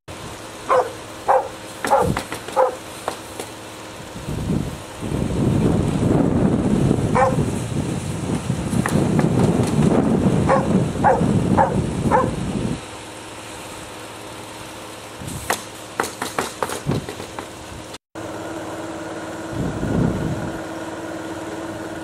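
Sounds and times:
steady hum: 0.1 - 15.9
dog barking: 0.7 - 2.8, 7.1 - 7.4, 10.4 - 12.4
scattered knocks and clicks: 1.8 - 3.6, 8.8 - 9.9, 15.5 - 17.6
wind buffeting microphone: 4.0 - 12.9, 19.5 - 20.6.

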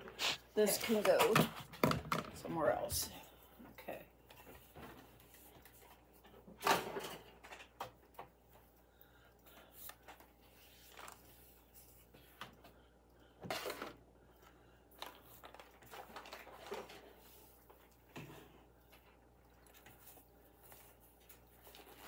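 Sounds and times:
objects knocking and rustling on desk: 0.9 - 2.4
objects clattering: 6.4 - 8.0.

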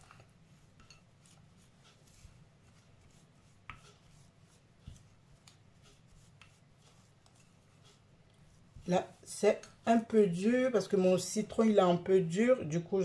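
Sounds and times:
hand squeezing lemon: 0.0 - 9.8.

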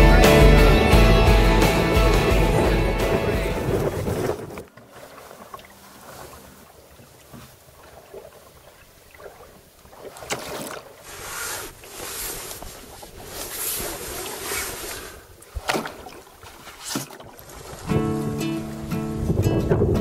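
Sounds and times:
sea water washing against boat: 2.0 - 20.0.

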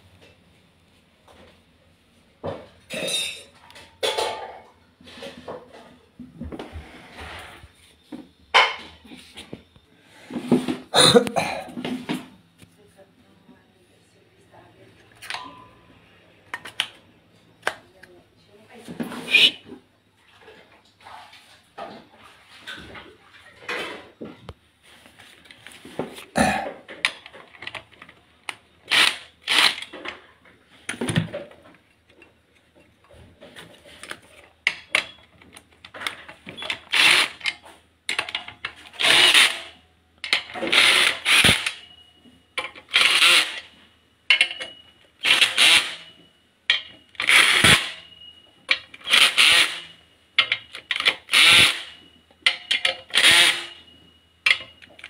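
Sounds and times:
cordless drill driving bolts: 28.9 - 29.9, 36.6 - 37.5, 38.9 - 39.7, 40.3 - 41.8, 42.9 - 43.7, 45.2 - 46.1, 47.2 - 48.0, 49.0 - 49.9, 50.9 - 52.0, 52.8 - 53.8.

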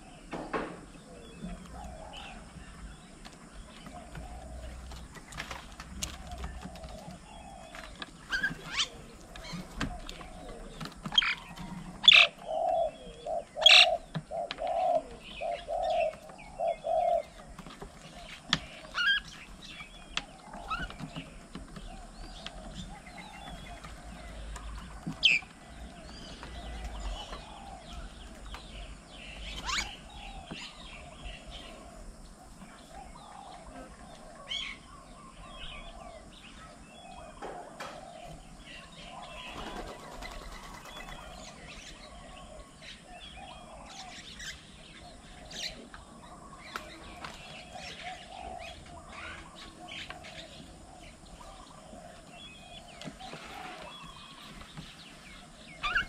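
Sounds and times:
small birds chirping: 0.0 - 56.0
sharp loud bird calls: 4.0 - 17.4, 22.0 - 32.5, 33.1 - 56.0
wings flapping: 39.4 - 41.4.

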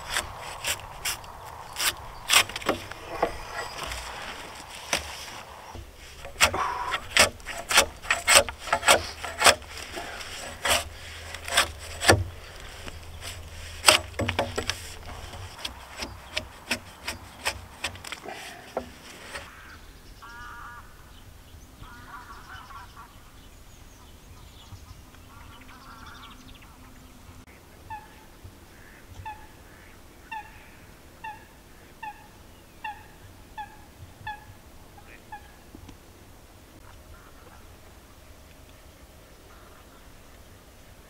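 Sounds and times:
debarking tool scraping bark: 0.0 - 19.6.

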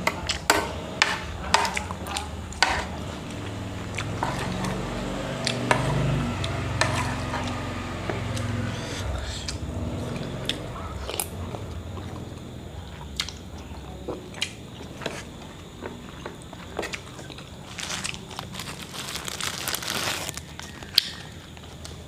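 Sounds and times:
eating sounds: 6.4 - 22.0
plastic snack bag crinkling: 17.2 - 21.8.

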